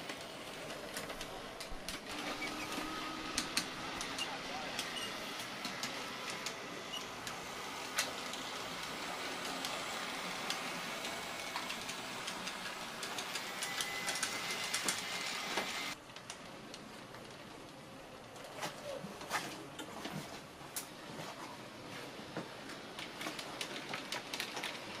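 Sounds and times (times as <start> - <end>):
wheels clicking on rails: 0.0 - 19.8, 22.2 - 25.0
small electric motors whirring: 2.0 - 16.0.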